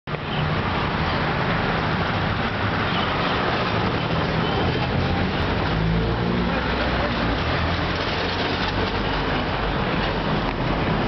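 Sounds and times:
street traffic noise: 0.1s - 11.0s.

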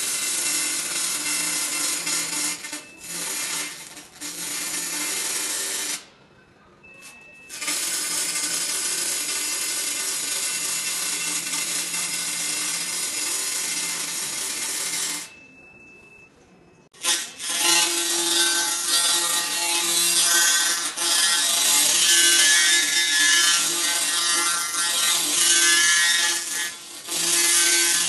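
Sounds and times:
faint tone: 6.2s - 7.5s, 15.3s - 16.9s.

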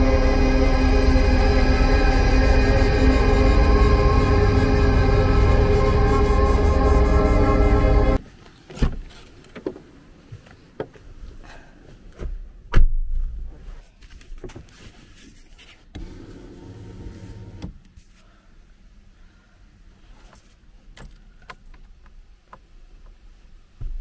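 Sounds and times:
electric window motor: 16.0s - 17.7s.

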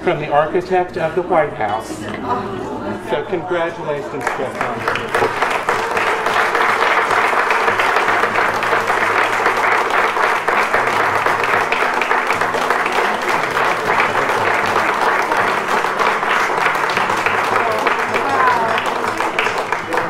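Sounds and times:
people applauding: 4.1s - 20.0s
music playing: 4.8s - 20.0s.

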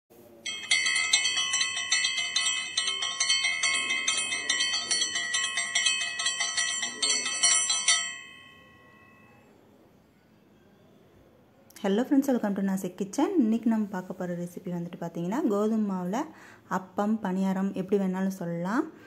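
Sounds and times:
hand bell rung rapidly: 0.5s - 9.3s.

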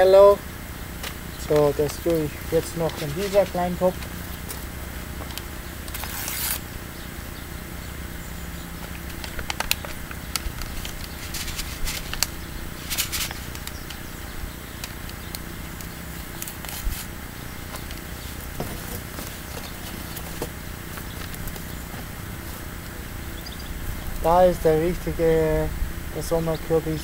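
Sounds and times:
low background noise: 0.0s - 27.0s
paper seed packet rustling: 1.0s - 6.6s, 8.8s - 22.8s.

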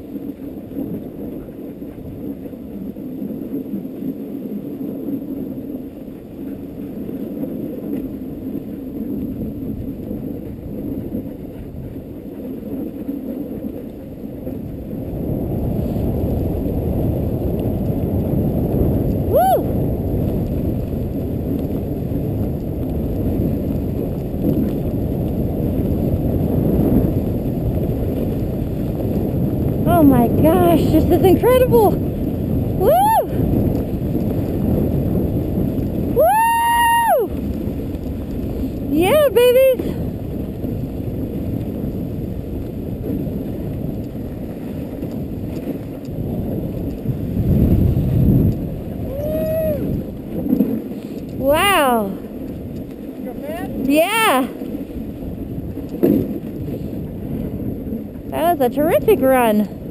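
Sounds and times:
sled runners rumbling on snow: 0.0s - 59.9s
wind on microphone: 0.0s - 59.9s
short high cry: 49.1s - 49.9s.

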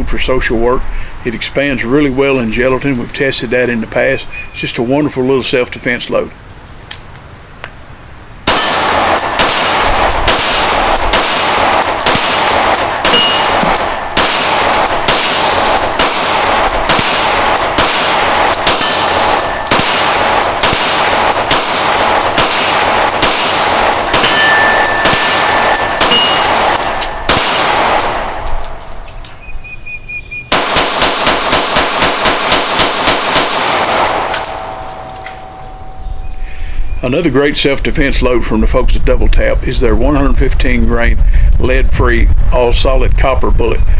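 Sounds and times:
pistol shots: 8.5s - 29.3s, 30.5s - 35.6s.

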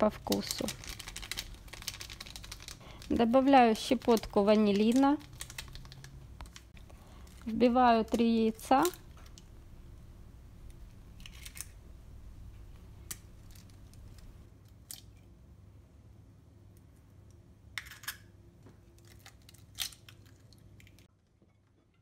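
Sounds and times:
eggshells cracking: 0.3s - 3.1s, 3.8s - 7.4s, 18.9s - 21.1s.

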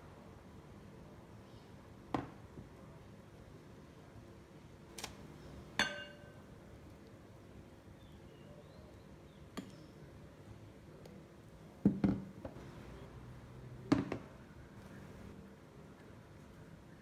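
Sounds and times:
metal ladle clinking against bowls: 5.8s - 6.4s.

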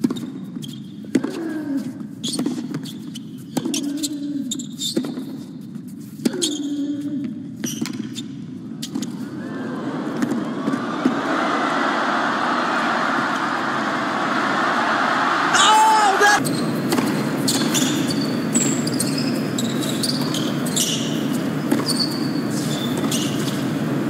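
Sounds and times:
crowd murmur: 9.2s - 16.4s
tennis ball struck with rackets: 16.9s - 17.9s.

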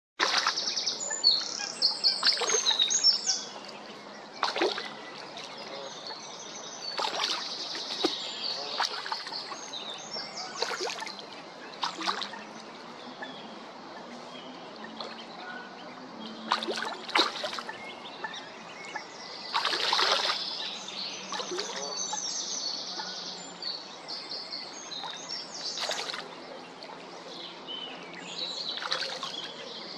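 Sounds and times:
ducklings splashing in water: 0.2s - 0.9s, 2.0s - 6.2s, 6.8s - 14.0s, 14.8s - 20.7s, 21.3s - 21.9s, 24.9s - 27.1s, 28.7s - 29.9s.

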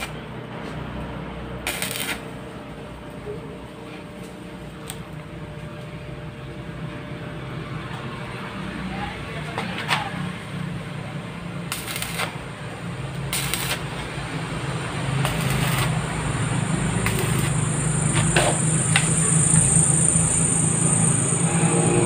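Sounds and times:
arc welding electrode crackling: 0.0s - 0.2s, 0.8s - 2.6s, 4.7s - 5.2s, 11.4s - 21.4s
steady low hum: 10.3s - 22.0s.

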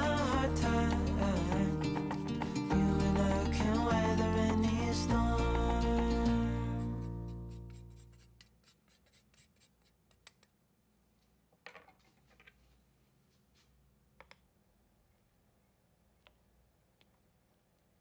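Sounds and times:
background music: 0.0s - 8.1s.

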